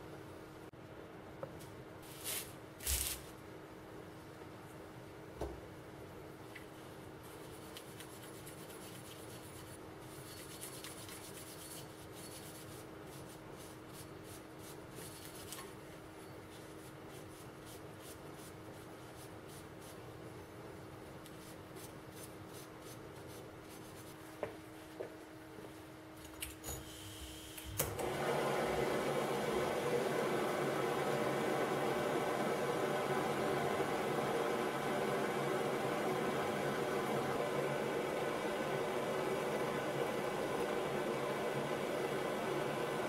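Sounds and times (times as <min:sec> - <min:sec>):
steel wool scratching metal: 0:08.2 - 0:13.3.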